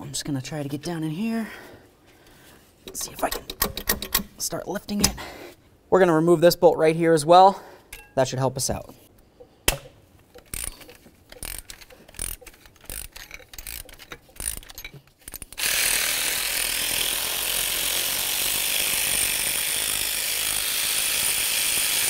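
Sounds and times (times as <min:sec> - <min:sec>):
ratchet wrench clicking: 0:10.3 - 0:22.0.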